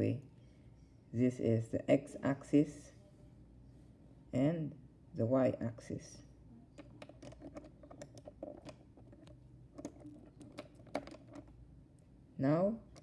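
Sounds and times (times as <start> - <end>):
small objects clicking on desk: 6.7 - 11.5.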